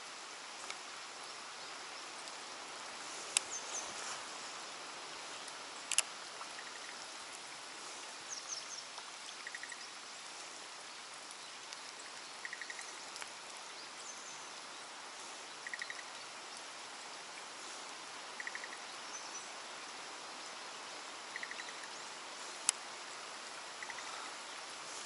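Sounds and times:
light rain hissing: 0:00.0 - 0:25.0
frog calling: 0:12.4 - 0:13.0, 0:15.6 - 0:16.1, 0:18.4 - 0:18.8, 0:21.3 - 0:21.9, 0:23.8 - 0:24.3.

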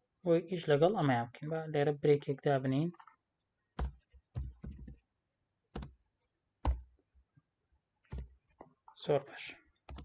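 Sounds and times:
keyboard keystrokes: 0:03.8 - 0:05.0, 0:08.1 - 0:08.4.

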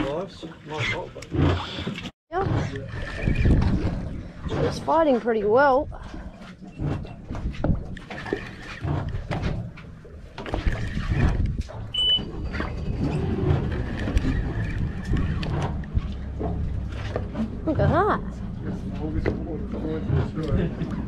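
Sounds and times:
boat engine humming: 0:00.0 - 0:21.0
wind on microphone: 0:02.4 - 0:04.9, 0:10.5 - 0:16.2
short high beep: 0:11.9 - 0:12.3.

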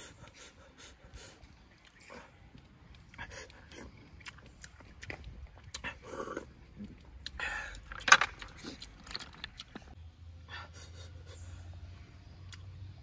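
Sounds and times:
chewing: 0:01.3 - 0:10.0
snail shells clattering: 0:07.8 - 0:09.9.

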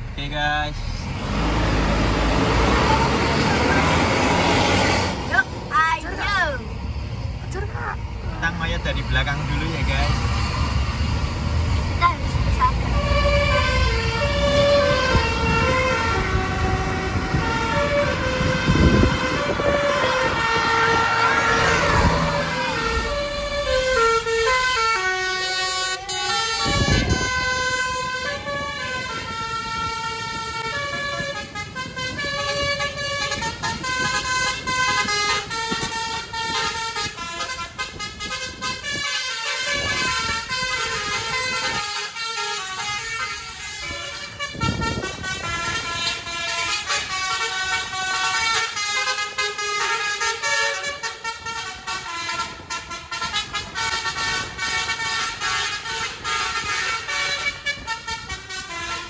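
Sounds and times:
passing vehicle rumble: 0:00.0 - 0:59.0
bus horn playing a melody: 0:12.6 - 0:59.0.

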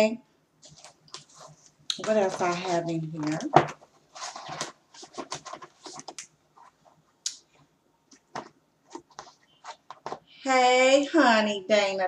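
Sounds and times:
paper and packaging rustling: 0:00.6 - 0:06.9.

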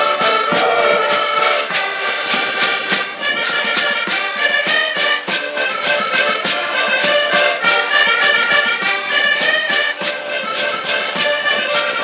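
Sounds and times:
bass drum beat: 0:00.0 - 0:01.9
folk band with accordions: 0:00.0 - 0:12.0.

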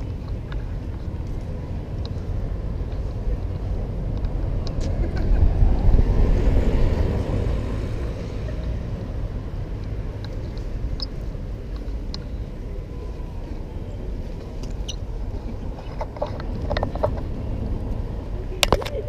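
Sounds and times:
street traffic rumble: 0:00.0 - 0:19.0
vehicle passing close by: 0:02.6 - 0:09.7.

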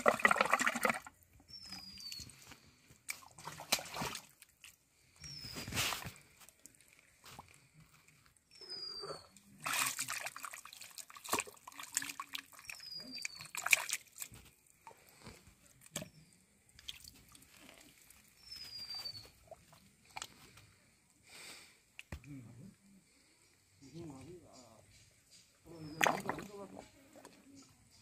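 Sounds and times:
hand squelching through mud and water: 0:00.0 - 0:01.1, 0:01.8 - 0:04.8, 0:09.5 - 0:16.1, 0:25.9 - 0:26.6.

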